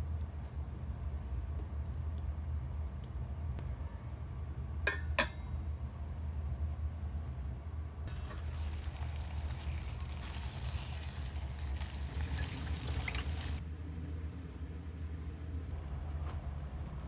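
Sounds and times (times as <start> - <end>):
constant low hum: 0.0 - 17.0
chicken frying in a pan: 8.1 - 13.6
water pouring into a saucepan: 8.1 - 13.6.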